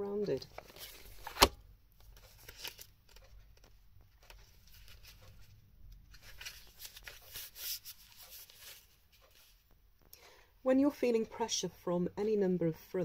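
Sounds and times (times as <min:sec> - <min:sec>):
paper and card rustling: 0:00.2 - 0:09.6
book pages leafing: 0:00.4 - 0:05.5, 0:06.1 - 0:09.5.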